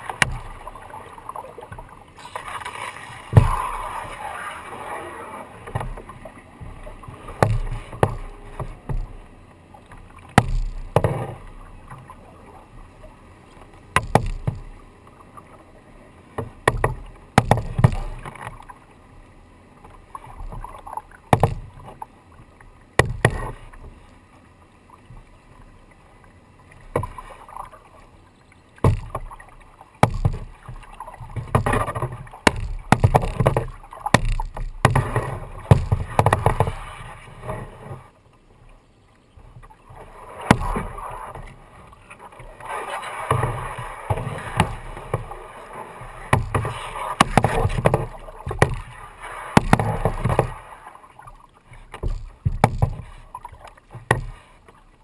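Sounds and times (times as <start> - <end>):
paddle knocking on kayak hull: 0.0 - 0.9, 2.4 - 3.9, 5.6 - 9.2, 10.3 - 11.6, 13.9 - 14.8, 16.4 - 18.6, 20.5 - 22.0, 23.0 - 23.8, 26.8 - 27.7, 28.8 - 36.8, 39.5 - 41.6, 43.3 - 50.6, 51.2 - 54.5
water dripping off paddle: 0.0 - 9.2, 39.5 - 54.9
paddle splashing water: 0.0 - 55.0.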